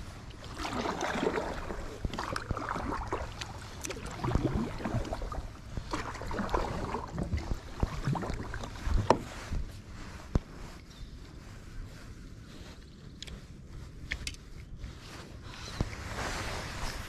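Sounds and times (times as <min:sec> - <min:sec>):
wind rumbling on microphone: 0:00.0 - 0:17.0
kayak paddle splashing in water: 0:00.3 - 0:09.6.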